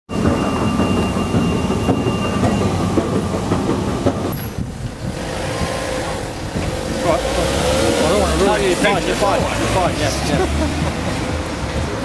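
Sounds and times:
wheel squeal: 0.1s - 8.6s
street noise: 0.1s - 12.0s
underground train rumbling and rattling: 0.1s - 12.0s.

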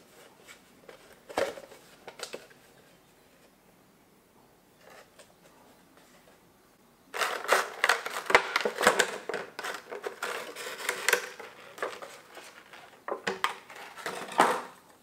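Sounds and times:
plastic tray crinkling and clicking: 7.2s - 14.8s.

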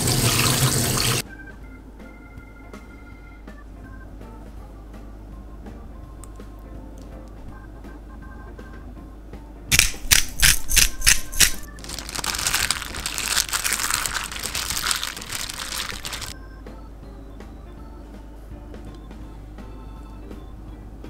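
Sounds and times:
gloved hand mixing oysters: 9.7s - 16.4s
pepper grinder strokes: 9.7s - 16.4s.

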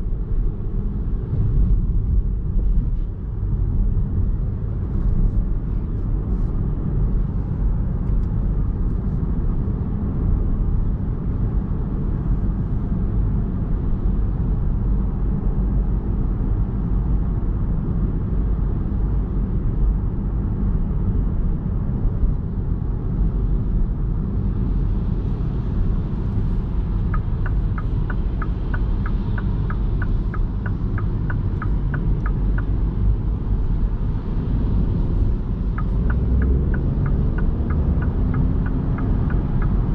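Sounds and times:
road and tyre rumble: 0.0s - 39.9s
turn signal ticking: 26.2s - 39.9s.

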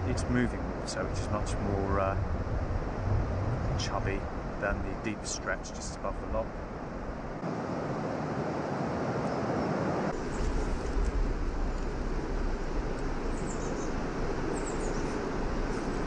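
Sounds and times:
wind rumbling on microphone: 0.0s - 16.0s
high bird chirps: 13.3s - 15.2s.

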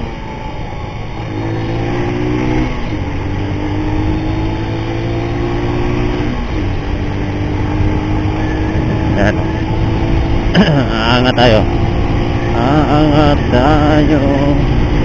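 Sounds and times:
motorcycle engine accelerating: 0.0s - 15.0s
wind rush: 1.4s - 12.6s.

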